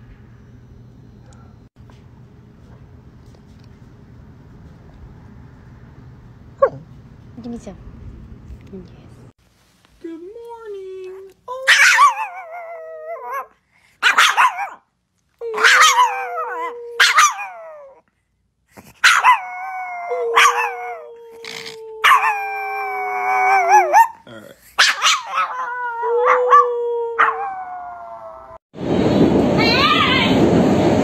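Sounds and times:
small dog howling: 11.6s - 14.8s, 15.4s - 18.0s, 19.0s - 24.2s, 24.8s - 28.6s
subway train in motion: 28.8s - 31.0s.

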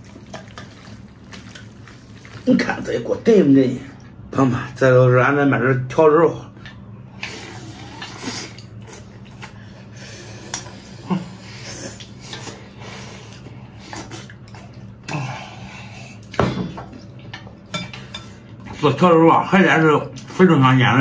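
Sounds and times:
person chewing: 0.0s - 2.5s.

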